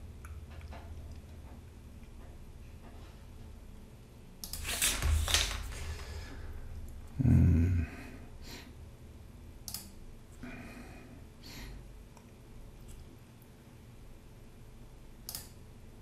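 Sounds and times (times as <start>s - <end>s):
low vocal sound: 7.1s - 8.3s
noisy exhale: 10.4s - 11.9s.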